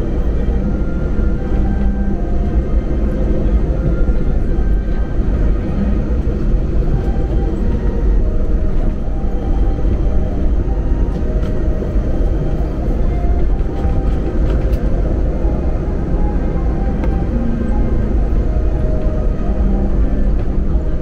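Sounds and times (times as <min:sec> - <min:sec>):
airliner cabin rumble: 0:00.0 - 0:21.0
faint steady hum tones: 0:00.0 - 0:21.0.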